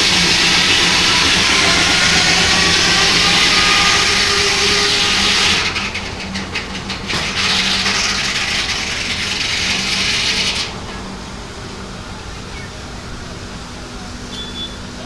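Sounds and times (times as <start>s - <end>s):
circular saw cutting log: 0.0s - 11.2s
steady machine hum: 0.0s - 15.0s.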